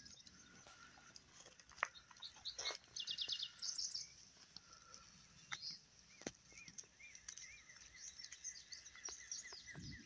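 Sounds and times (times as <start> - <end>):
birds chirping and calling: 0.0 - 10.0.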